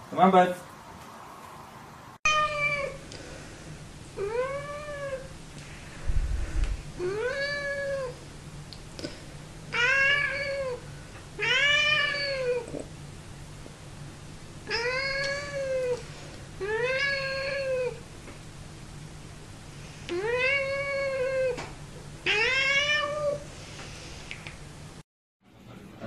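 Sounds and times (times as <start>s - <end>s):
cat meowing: 2.3s - 3.0s, 4.2s - 5.3s, 7.0s - 8.2s, 9.7s - 10.8s, 11.4s - 12.8s, 14.6s - 16.0s, 16.6s - 18.0s, 20.1s - 21.6s, 22.2s - 23.4s.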